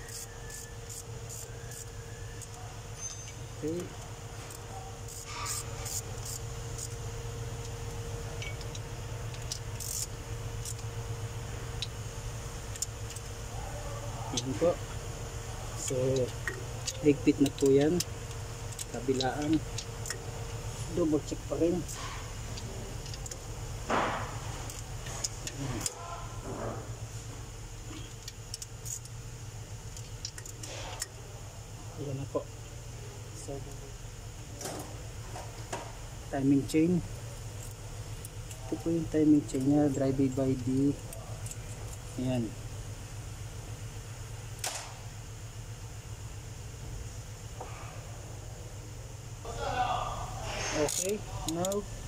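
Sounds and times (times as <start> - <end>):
ratchet wrench clicking: 0.0 - 12.0, 12.6 - 13.3, 15.7 - 23.5, 27.9 - 29.2, 29.9 - 31.1, 37.5 - 42.3, 50.6 - 52.0
steady low hum: 0.0 - 52.0.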